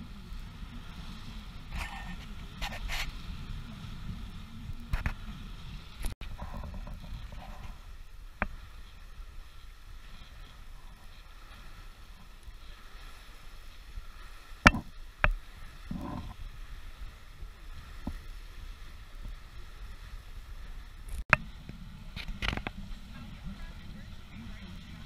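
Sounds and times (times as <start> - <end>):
water rushing along a hull: 0.0 - 25.0
wind: 0.0 - 25.0
sharp knocks: 14.7 - 15.4.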